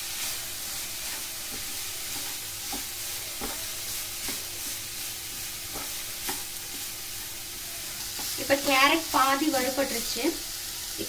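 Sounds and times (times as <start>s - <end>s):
spatula scraping a pan: 0.0s - 8.8s
vegetables sizzling in hot oil: 0.0s - 11.0s.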